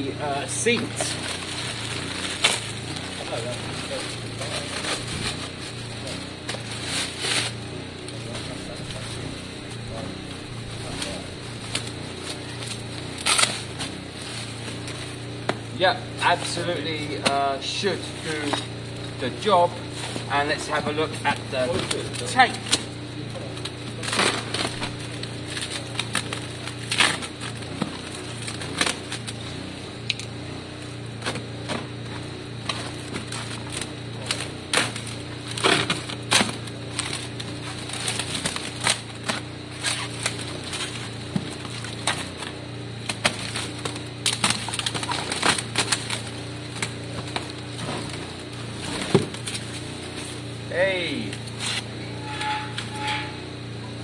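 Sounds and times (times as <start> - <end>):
steady low hum: 0.0 - 54.0
cardboard and plastic crinkling: 0.5 - 7.6, 23.6 - 29.6, 32.6 - 50.4.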